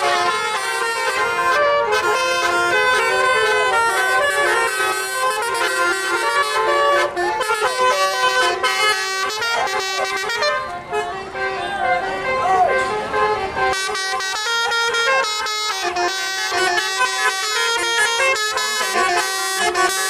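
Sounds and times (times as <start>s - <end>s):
bus horn playing a melody: 0.0s - 20.0s.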